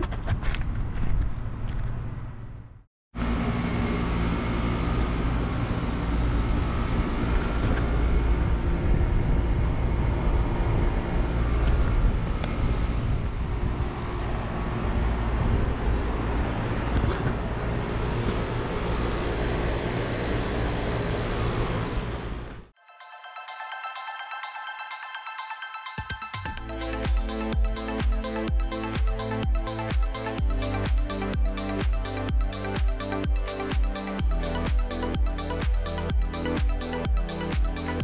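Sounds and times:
wind rumble on microphone: 0.0 - 2.8, 5.5 - 20.4.

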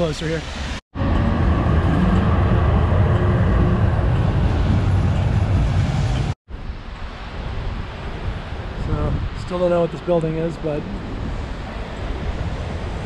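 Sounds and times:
tram rumbling on rails: 1.0 - 6.4.

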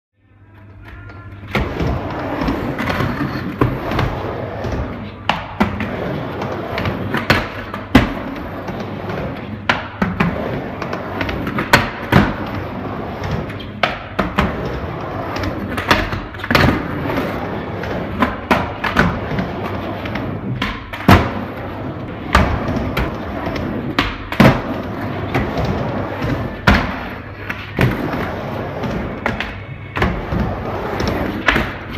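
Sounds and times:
skateboard wheels rumbling: 1.4 - 31.9.

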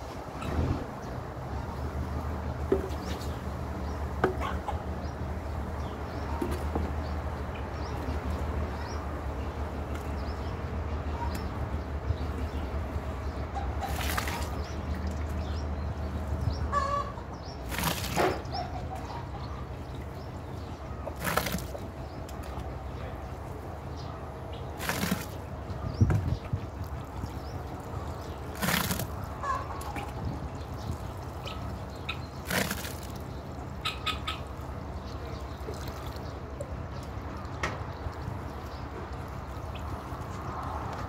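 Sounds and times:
hens clucking: 4.2 - 5.3, 16.6 - 20.1, 28.6 - 30.4, 33.7 - 34.9
wet sloshing splashes: 13.8 - 15.4, 17.6 - 18.6, 21.1 - 22.0, 24.8 - 25.5, 26.7 - 34.7, 35.4 - 36.4.

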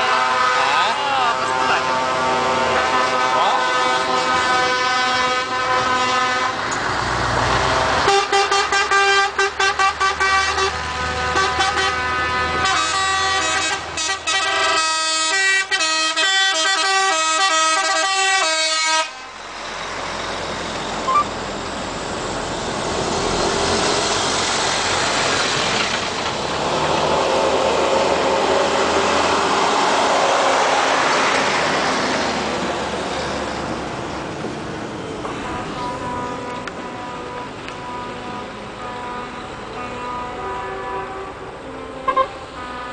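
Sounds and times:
truck air horns blasting: 0.0 - 6.7, 7.9 - 19.3, 35.4 - 42.9
trucks passing by: 0.0 - 42.9.

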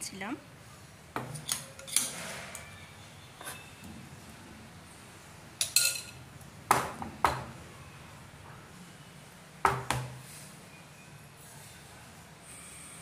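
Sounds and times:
spoon clinking on metal tin: 5.6 - 6.2.

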